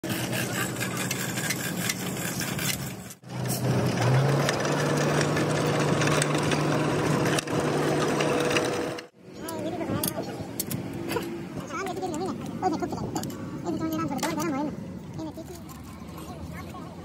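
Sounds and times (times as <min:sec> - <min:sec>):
machine humming: 0:03.3 - 0:09.2.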